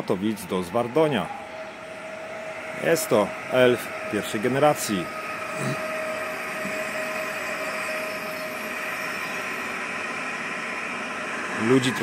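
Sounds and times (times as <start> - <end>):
electric train whirring hum: 0.0 - 12.0.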